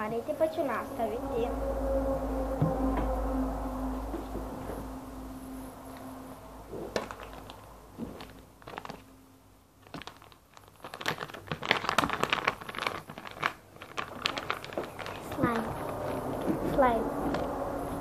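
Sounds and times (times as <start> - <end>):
plastic packet crinkling: 6.9 - 9.1, 9.8 - 16.6.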